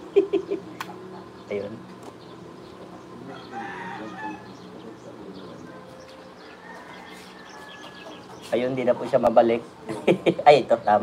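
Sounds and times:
steady low hum: 0.0s - 11.0s
rooster crowing: 3.2s - 5.0s, 5.6s - 8.5s.

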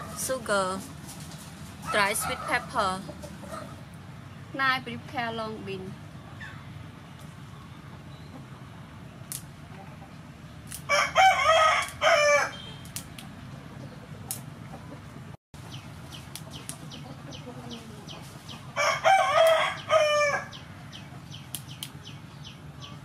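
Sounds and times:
beans snapped by hand: 9.3s - 9.5s, 10.6s - 10.9s, 11.8s - 12.0s, 12.8s - 13.4s, 14.3s - 14.5s, 19.4s - 19.6s, 21.5s - 22.0s
rooster crowing: 10.9s - 12.7s, 18.7s - 20.6s.

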